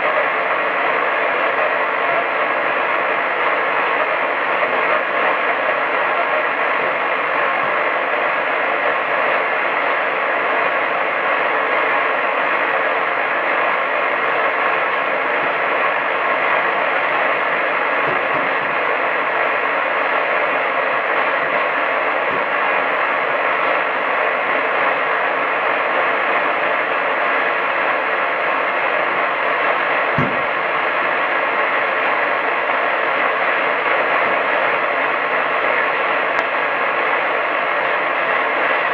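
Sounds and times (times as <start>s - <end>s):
radio static hiss: 0.0s - 38.9s
low thump: 30.2s - 30.5s.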